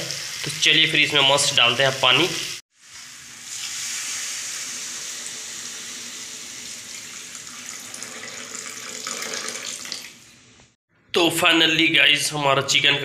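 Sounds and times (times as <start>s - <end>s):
water pouring into curry: 2.8s - 10.2s.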